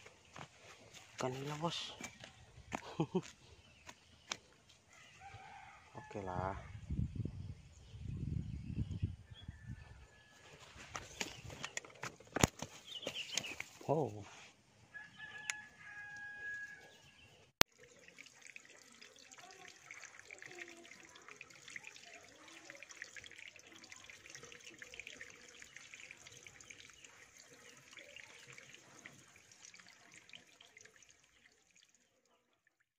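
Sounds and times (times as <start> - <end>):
water trickling and dripping: 0.0 - 5.8, 17.6 - 32.9.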